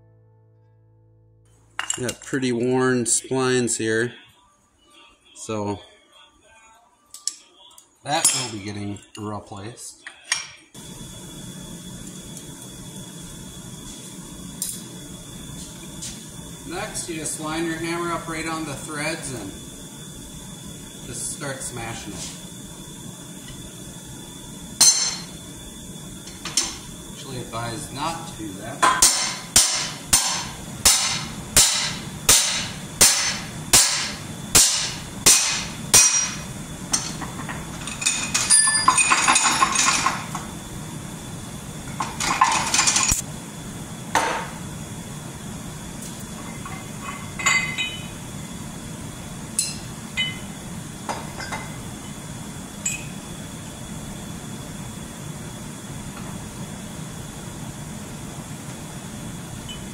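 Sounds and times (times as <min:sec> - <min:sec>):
hammer striking steel bar: 0:28.8 - 0:36.4.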